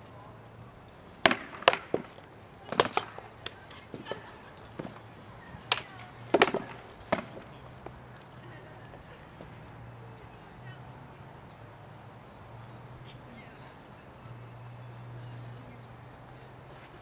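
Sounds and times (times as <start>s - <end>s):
swords striking shields: 1.2s - 3.3s, 5.7s - 7.5s.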